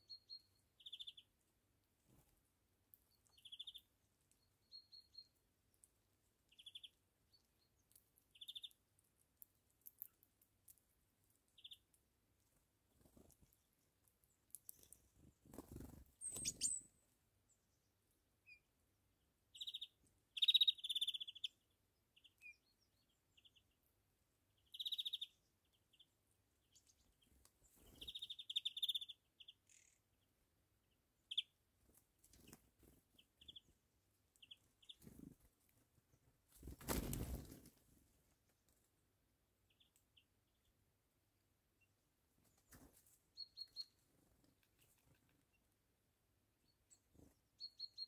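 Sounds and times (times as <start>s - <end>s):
songbirds trilling: 15.7s - 16.9s, 19.5s - 21.6s, 24.6s - 30.1s
soft wing flutters: 36.5s - 37.8s.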